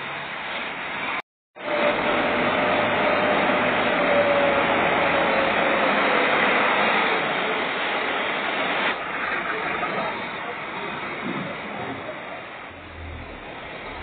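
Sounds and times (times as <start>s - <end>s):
dump truck reversing: 1.6s - 7.1s, 12.7s - 14.0s
tractor diesel engine: 1.6s - 14.0s.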